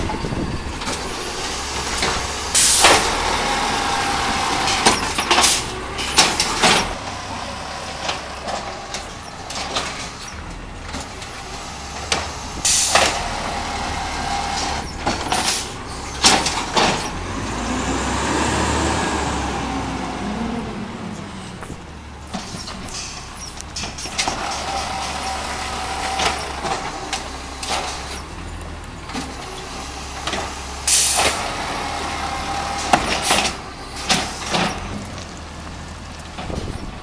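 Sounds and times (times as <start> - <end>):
truck engine pulling away: 0.0 - 37.0
short air hisses: 2.4 - 3.0, 11.7 - 13.1.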